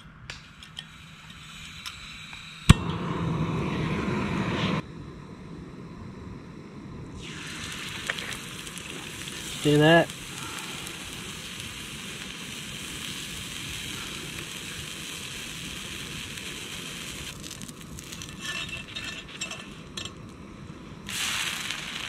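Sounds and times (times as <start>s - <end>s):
batter sizzling on griddle: 7.2s - 20.3s, 21.0s - 22.0s
metal spatula scraping griddle: 18.2s - 19.8s.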